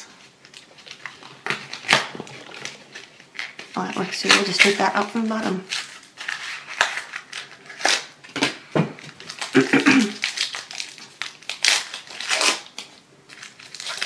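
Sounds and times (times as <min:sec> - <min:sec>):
foil wrapper crinkling: 0:00.0 - 0:08.4, 0:09.0 - 0:14.0.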